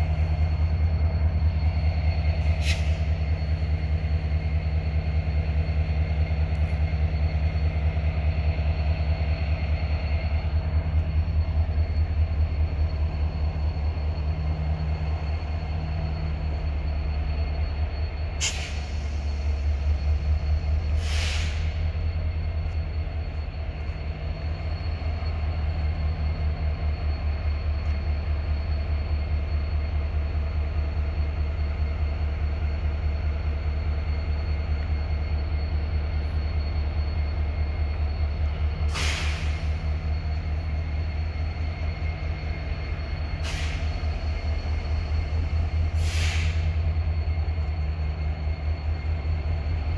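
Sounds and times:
electric locomotive humming: 0.0s - 49.9s
air hissing: 2.4s - 3.2s, 18.4s - 19.5s, 21.0s - 21.8s, 38.8s - 39.8s, 43.4s - 44.2s, 45.5s - 46.8s.

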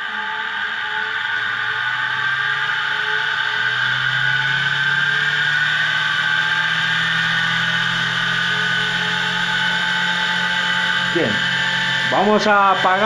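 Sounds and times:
spin dryer motor whining: 0.0s - 13.0s.

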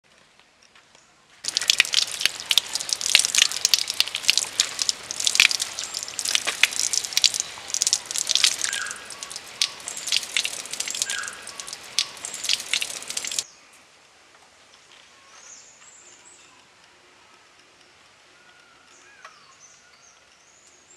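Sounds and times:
tap water splashing over fish: 1.5s - 13.4s.

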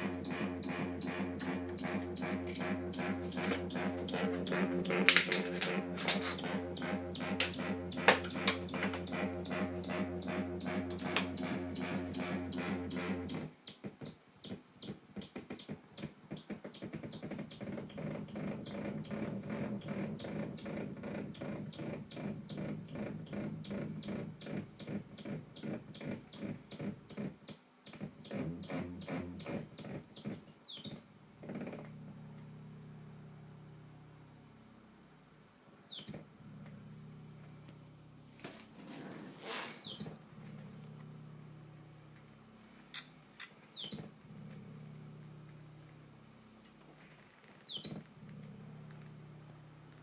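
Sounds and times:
high synthesizer sweep: 0.0s - 13.5s
pulsing synthesizer tone: 0.0s - 13.5s, 39.6s - 41.2s.

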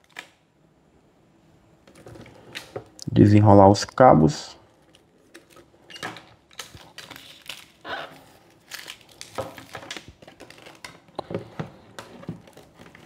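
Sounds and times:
cables crinkling and rustling: 0.0s - 0.4s, 4.7s - 13.0s.

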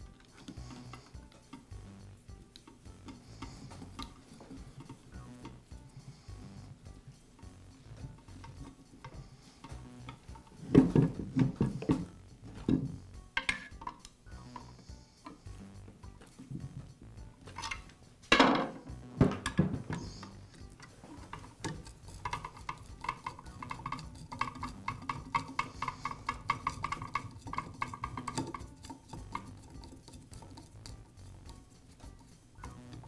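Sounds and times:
screw ticking and squeaking: 0.0s - 5.9s, 7.4s - 12.2s, 17.4s - 18.0s, 19.4s - 33.0s.

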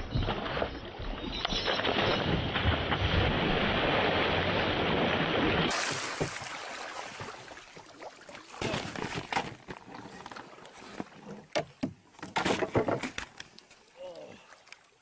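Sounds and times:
splash into water: 0.0s - 9.3s
rushing water: 0.7s - 15.0s.

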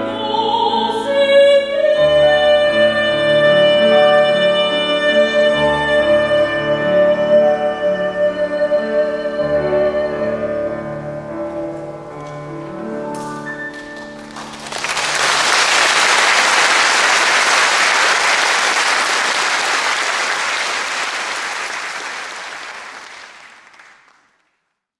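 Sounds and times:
soprano singing: 0.0s - 14.2s
grand piano chords: 0.0s - 21.0s
audience applause: 13.7s - 24.6s.

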